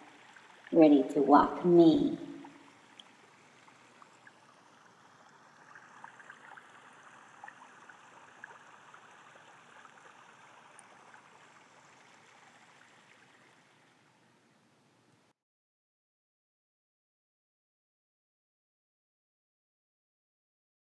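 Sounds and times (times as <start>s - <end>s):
faint steady hiss: 0.0s - 15.3s.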